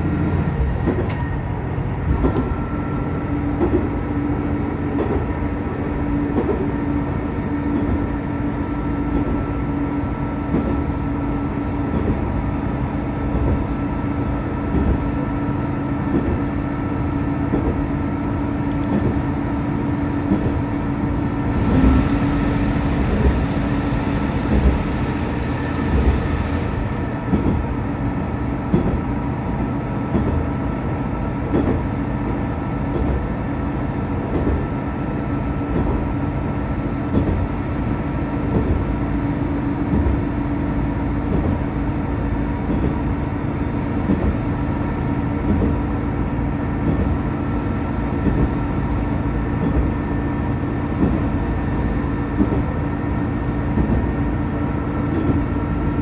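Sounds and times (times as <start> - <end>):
diesel railcar engine drone: 0.0 - 56.0
wheels knocking on rails: 2.1 - 2.6, 3.6 - 4.0, 20.2 - 20.7, 27.3 - 27.7, 28.6 - 29.1, 30.1 - 30.5, 31.4 - 31.9, 37.1 - 37.5, 38.5 - 38.9, 39.8 - 40.3, 41.2 - 41.7, 42.6 - 43.1, 44.0 - 44.6, 45.4 - 46.0, 46.8 - 47.2, 48.2 - 48.6, 49.6 - 50.2, 50.9 - 51.4, 52.3 - 52.7, 53.7 - 54.2.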